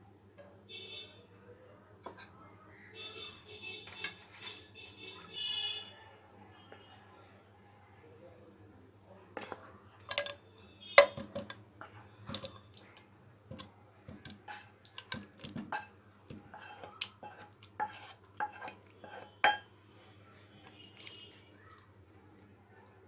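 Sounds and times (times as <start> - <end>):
spatula clinking and scraping pot: 11.0 - 19.7.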